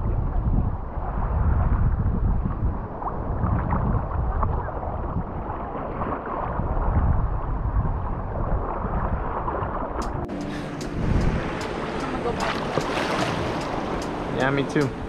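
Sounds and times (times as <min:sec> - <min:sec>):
wind on microphone: 0:00.0 - 0:15.0
ocean surf lapping: 0:09.4 - 0:15.0.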